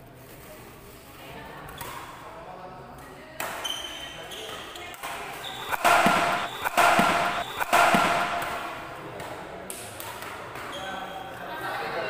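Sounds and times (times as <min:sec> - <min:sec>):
badminton racket hitting shuttlecock: 0:04.5 - 0:10.7.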